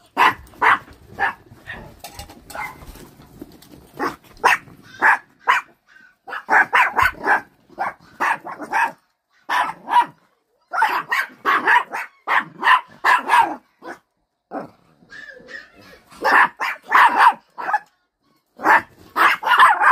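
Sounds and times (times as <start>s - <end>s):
dogs barking: 0.0s - 3.0s, 3.9s - 14.1s, 15.0s - 19.9s.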